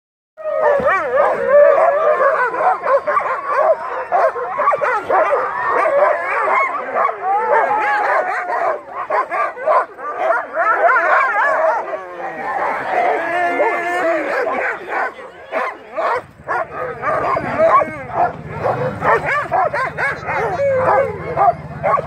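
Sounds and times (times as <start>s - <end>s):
dogs barking and howling: 0.4s - 22.0s.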